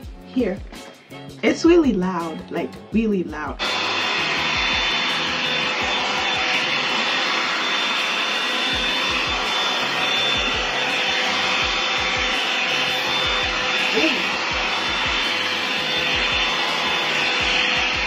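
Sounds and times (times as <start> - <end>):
hair dryer running: 3.6 - 18.0.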